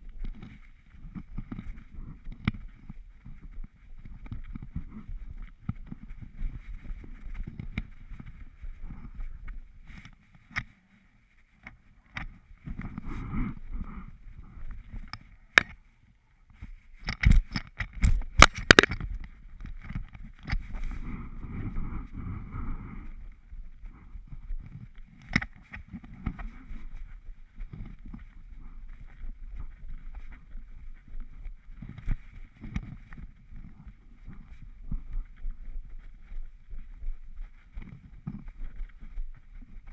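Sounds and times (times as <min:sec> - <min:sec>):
camera harness rustling and bumping: 0:16.6 - 0:22.3.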